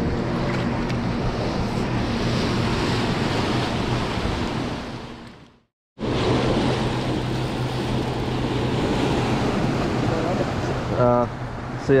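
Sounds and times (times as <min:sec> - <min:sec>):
turbulent water rushing: 0:06.0 - 0:12.0.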